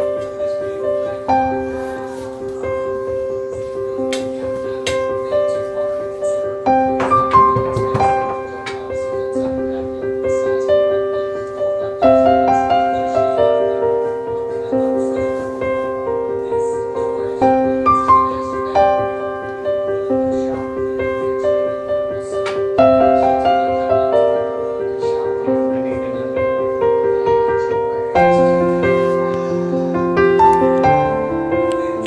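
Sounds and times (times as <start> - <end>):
piano music: 0.0 - 32.0.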